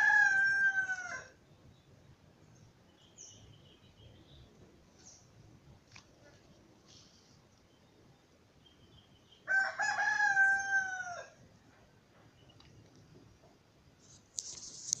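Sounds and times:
rooster crowing: 0.0 - 1.4, 9.5 - 11.4
high-pitched rustle: 14.0 - 15.0.

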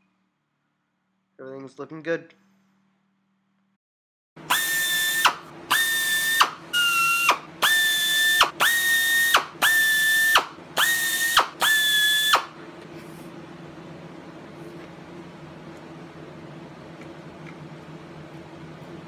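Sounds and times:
pneumatic air drill whining: 4.4 - 12.6.

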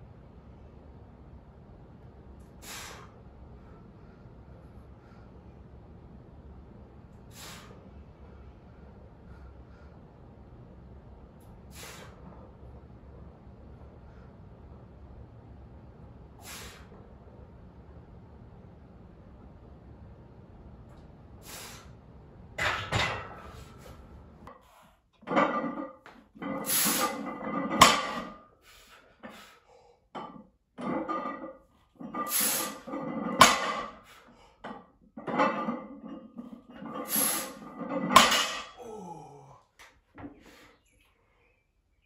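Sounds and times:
strained breath: 7.3 - 10.1, 11.7 - 12.4, 16.4 - 17.0.

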